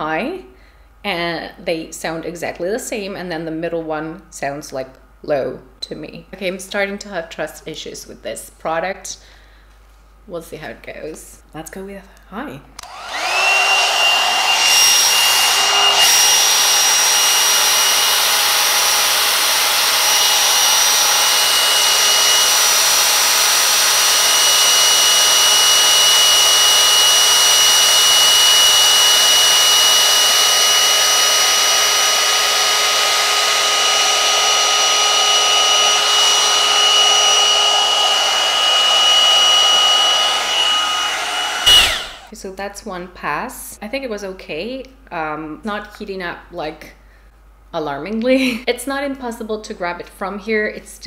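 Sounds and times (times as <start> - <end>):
hair dryer blowing air: 12.8 - 42.3
high motor whine: 12.8 - 42.3.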